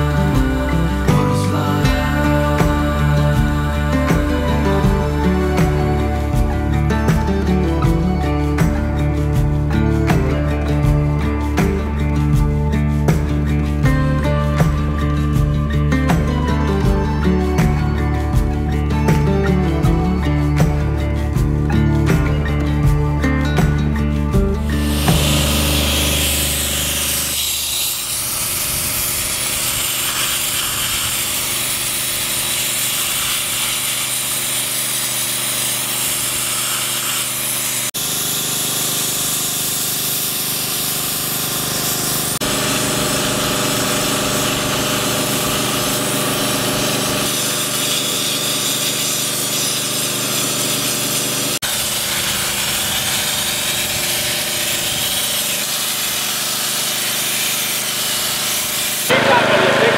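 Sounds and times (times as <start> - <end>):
sandblaster hissing: 24.7 - 59.9.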